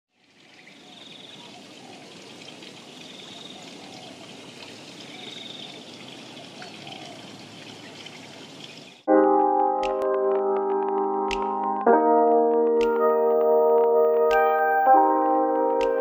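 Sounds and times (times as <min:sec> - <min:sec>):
stream trickling over stones: 0:00.1 - 0:09.1.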